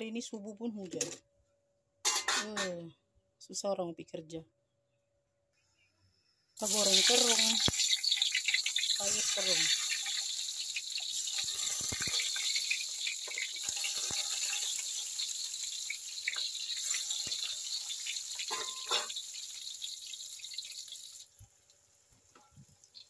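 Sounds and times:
food sizzling in hot oil: 0:06.6 - 0:23.0.

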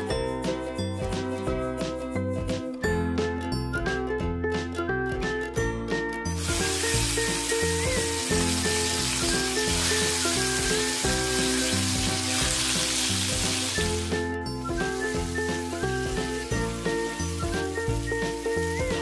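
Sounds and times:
background music: 0:00.0 - 0:19.0
fish sizzling in hot oil: 0:06.4 - 0:19.0.

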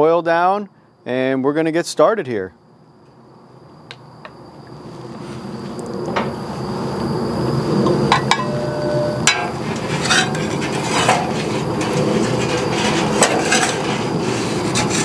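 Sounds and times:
metal spatula scraping griddle: 0:08.4 - 0:15.0.

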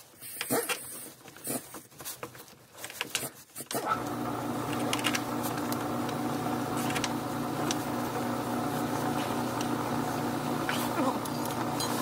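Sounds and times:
motor humming: 0:03.9 - 0:12.0.

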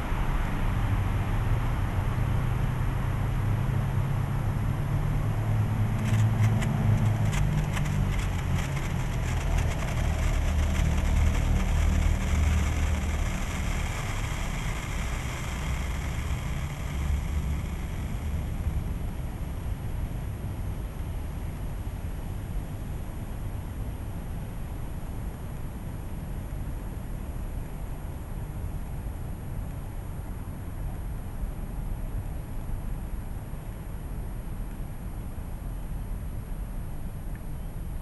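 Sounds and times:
low rumble of road traffic: 0:00.0 - 0:38.0
sparkler crackling: 0:06.0 - 0:18.8.

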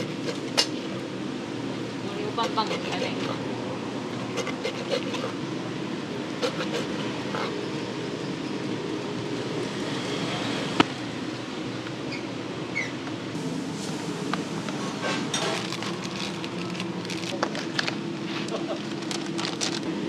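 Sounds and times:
background hum: 0:00.0 - 0:09.5, 0:11.7 - 0:20.0.

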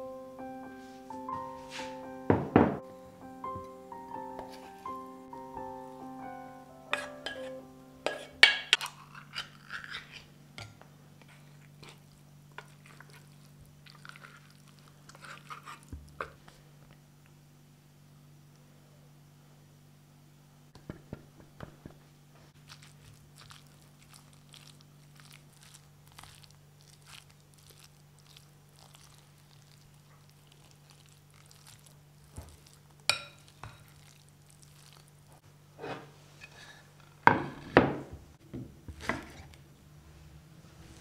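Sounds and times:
spoon mixing rice squishing: 0:08.0 - 0:16.6, 0:22.6 - 0:35.4.

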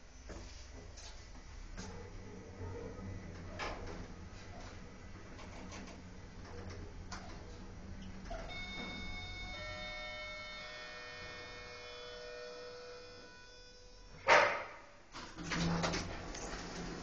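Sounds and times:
elevator car rumbling: 0:02.9 - 0:10.0, 0:15.4 - 0:17.0
high-pitched whine: 0:08.4 - 0:14.2.

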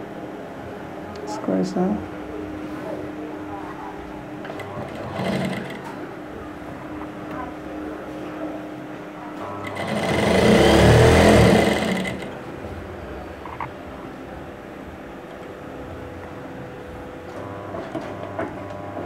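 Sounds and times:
sewing machine stitching: 0:04.4 - 0:06.0, 0:09.6 - 0:12.4.

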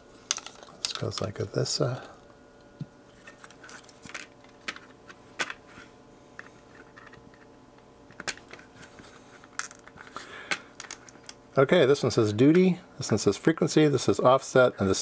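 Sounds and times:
plastic parts clicking and tapping: 0:09.5 - 0:11.4.

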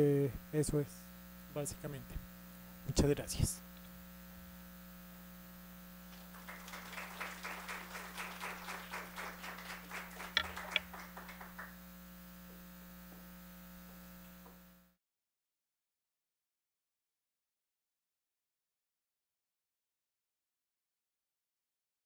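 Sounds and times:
electrical mains hum: 0:00.0 - 0:15.0
audience applauding: 0:06.1 - 0:11.8.

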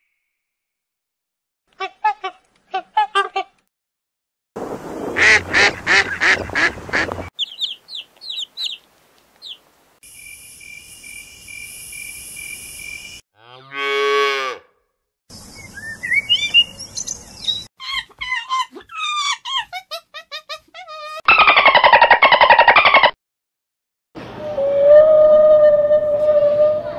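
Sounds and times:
geese honking: 0:05.2 - 0:07.3
songbird chirping: 0:07.2 - 0:13.1, 0:15.3 - 0:18.0.

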